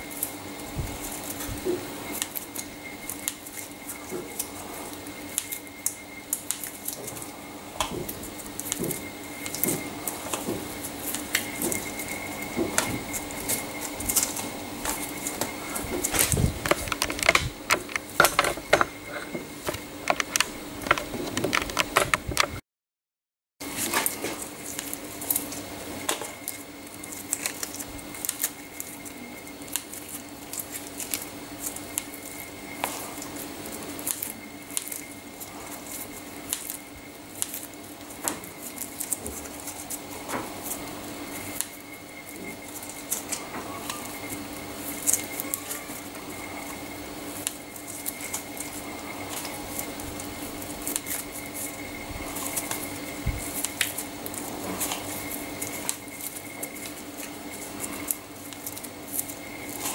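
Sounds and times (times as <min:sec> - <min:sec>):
steady low hum: 0:00.0 - 0:22.6.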